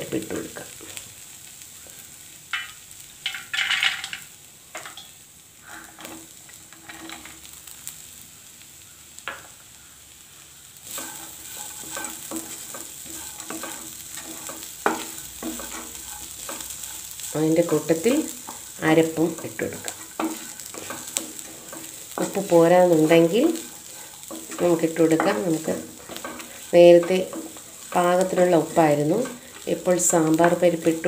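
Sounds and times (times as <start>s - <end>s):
light sizzling: 0.0s - 31.0s
wooden spatula scraping and stirring: 5.6s - 7.6s, 10.8s - 31.0s.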